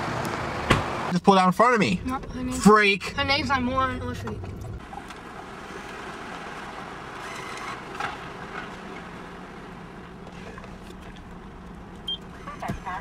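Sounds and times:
car engine idling: 0.0 - 13.0
bill acceptor whir and click: 7.2 - 8.0.

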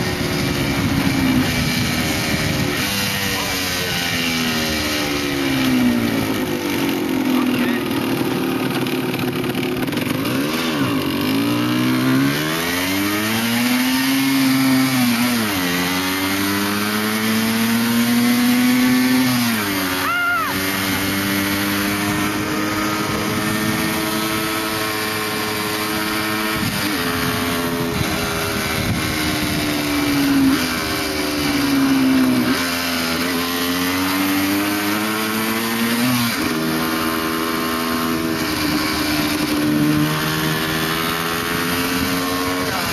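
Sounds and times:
motorcycle engine accelerating: 0.0 - 42.9
wind rush: 26.5 - 30.2.

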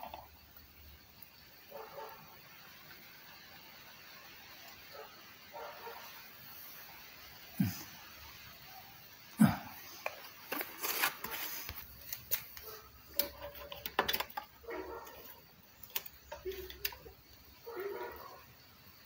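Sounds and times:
plastic bottles clicking and tapping: 10.0 - 17.6.

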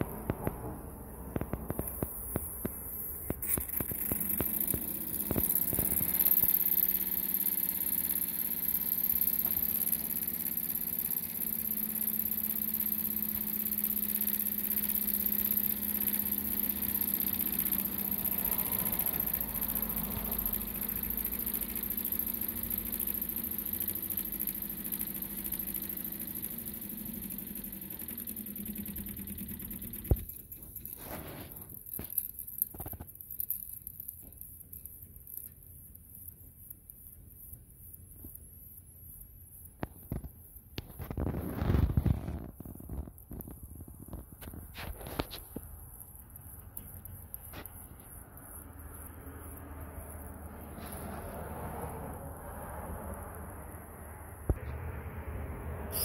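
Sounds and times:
low hum: 0.0 - 32.2, 46.0 - 56.0
toy steam engines chuffing: 1.5 - 32.4.

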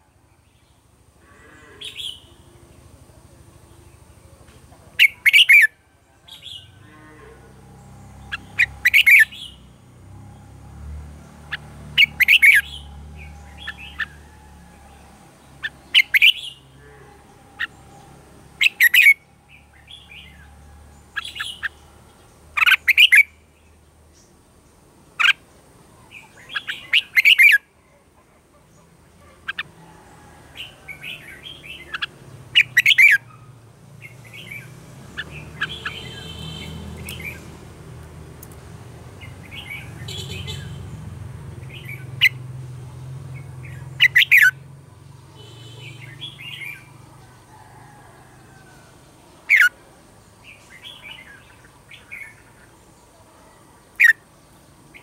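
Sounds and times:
bird warbling song: 1.4 - 2.9, 4.9 - 6.9, 7.5 - 9.8, 11.2 - 24.3, 25.2 - 27.6, 30.6 - 38.6, 43.3 - 47.5, 49.3 - 49.8
soft bird chirps: 30.9 - 37.6.

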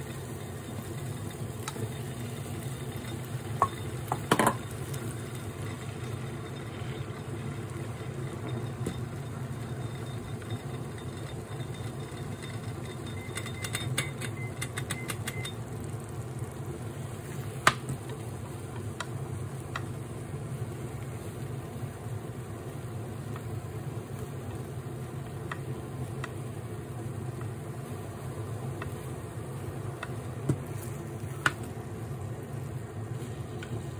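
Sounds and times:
low kitchen hum: 0.0 - 33.9
chopsticks clicking against pan: 12.8 - 15.6.

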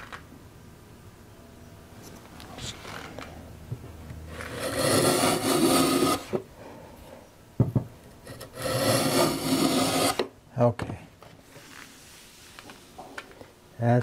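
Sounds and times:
hand plane shaving wood: 4.3 - 6.4, 8.3 - 10.3.

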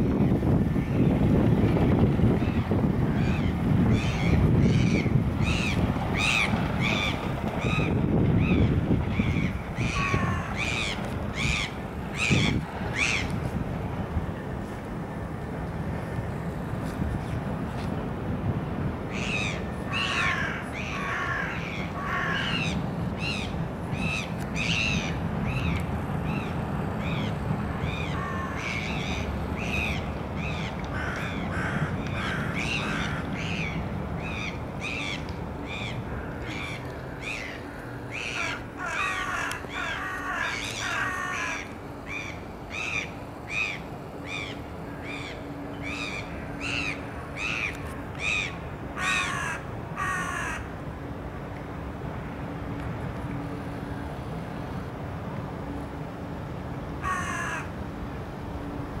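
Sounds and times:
crows cawing: 9.2 - 13.3, 19.1 - 22.8, 28.0 - 29.1, 30.6 - 33.7, 34.3 - 50.7, 57.0 - 57.7.

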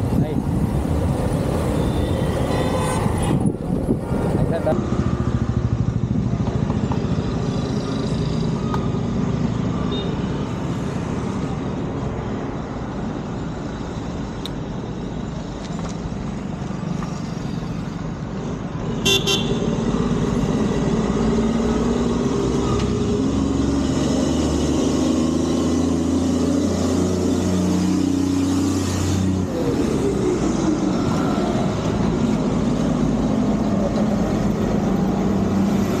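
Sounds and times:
road traffic noise: 0.0 - 36.0
vehicle horn toot: 19.0 - 19.7.

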